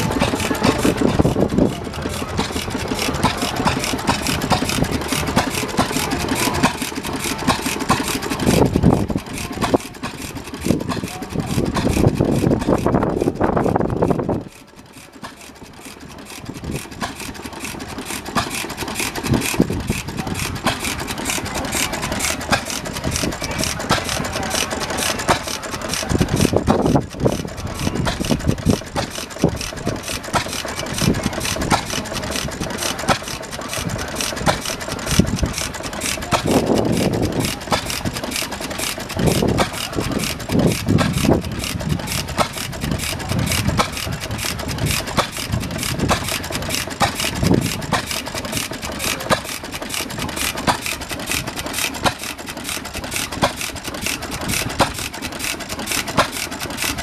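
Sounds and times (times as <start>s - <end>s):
stationary engines running: 0.0s - 57.0s.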